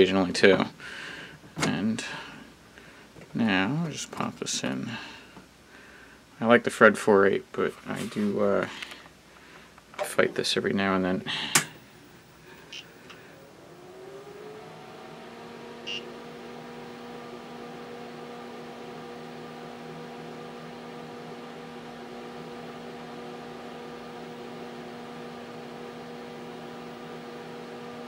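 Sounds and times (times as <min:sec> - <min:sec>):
computer motor and fan hum: 0:11.0 - 0:28.0.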